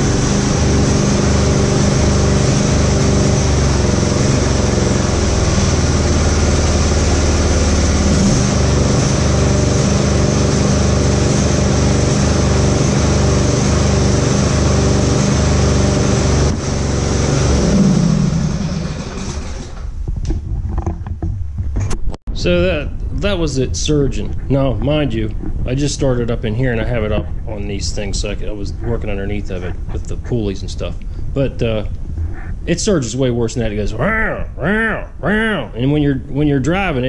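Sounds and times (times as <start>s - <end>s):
lawn tractor engine surging: 0.0s - 20.0s.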